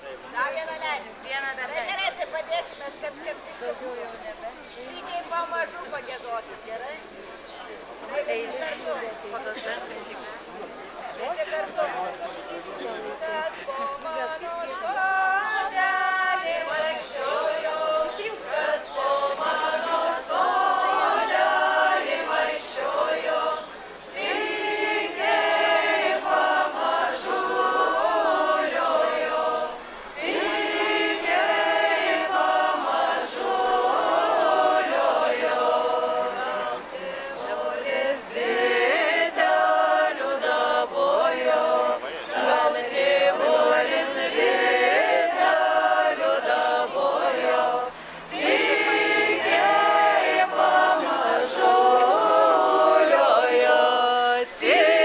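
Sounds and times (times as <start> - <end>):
women singing a cappella: 12.9 - 55.0.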